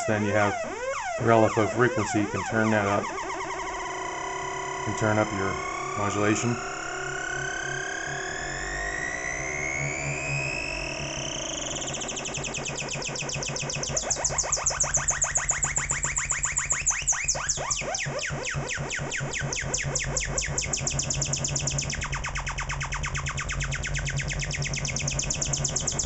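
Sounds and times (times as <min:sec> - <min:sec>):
electronic chirping pulses: 0:00.0 - 0:26.0
falling pitch sweeps: 0:00.0 - 0:26.0.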